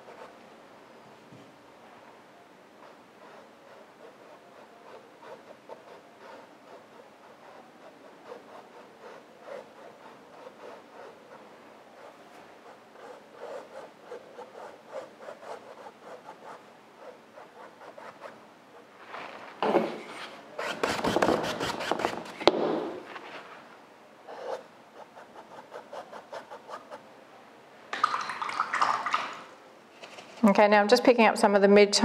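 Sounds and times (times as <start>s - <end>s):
flat brush scrubbing canvas: 2.8s - 11.4s, 12.0s - 22.4s
fine brush strokes on canvas: 14.4s - 20.7s.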